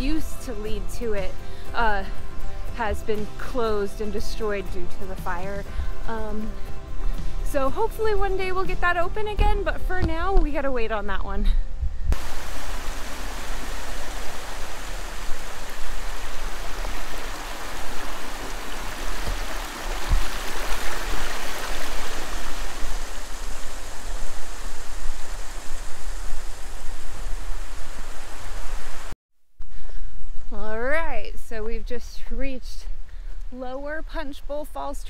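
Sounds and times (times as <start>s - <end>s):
waterfall rushing: 12.2s - 29.1s.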